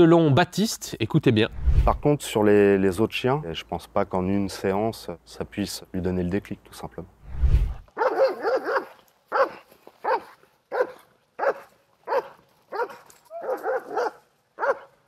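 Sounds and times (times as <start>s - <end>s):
dog barking: 8.0s - 15.0s.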